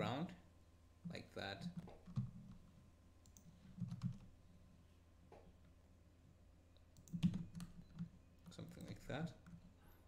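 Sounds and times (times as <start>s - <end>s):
mouse and keyboard clicks: 7.0s - 9.6s.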